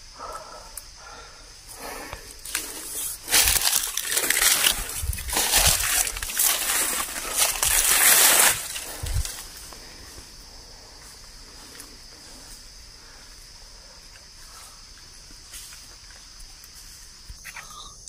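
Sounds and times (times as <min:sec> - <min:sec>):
forest insects droning: 0:00.0 - 0:18.0
crunching of dry leaf litter: 0:01.8 - 0:10.4.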